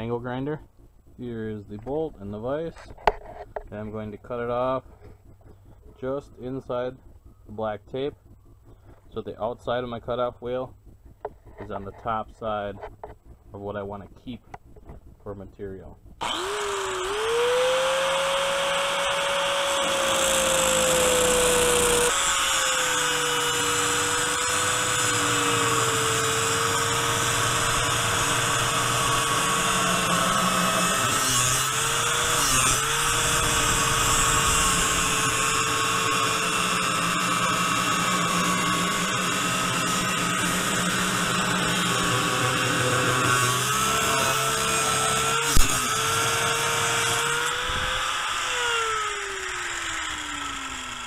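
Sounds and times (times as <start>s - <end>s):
angle grinder cutting steel: 16.2s - 51.0s.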